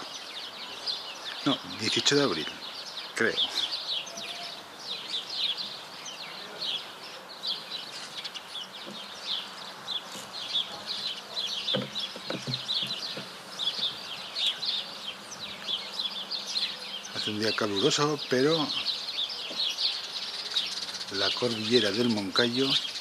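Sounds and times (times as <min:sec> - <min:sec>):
small birds chirping: 0:00.0 - 0:23.0
soft low knocks: 0:08.7 - 0:09.4, 0:10.0 - 0:14.2.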